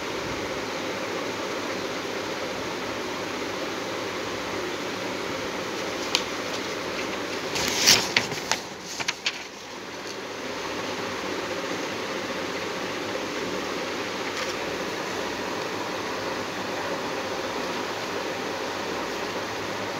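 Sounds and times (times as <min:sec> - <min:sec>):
background hiss: 0:00.0 - 0:19.9
paper rustling and clicking: 0:05.7 - 0:10.3, 0:14.2 - 0:14.8.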